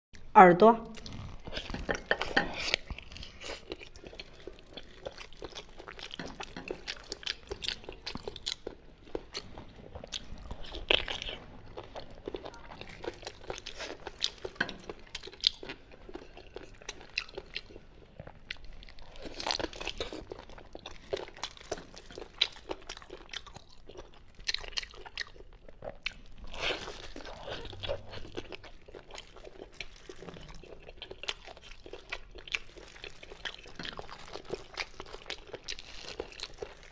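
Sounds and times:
crunchy chewing: 0.9s - 36.9s.

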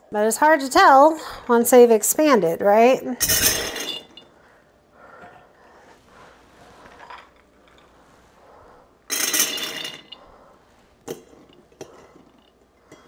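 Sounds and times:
glass clinks: 3.2s - 4.3s.

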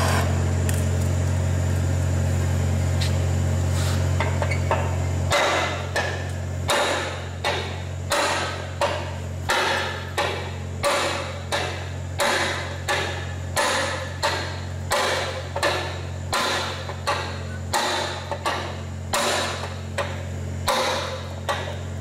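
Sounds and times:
hammer striking metal tool: 4.7s - 21.8s.

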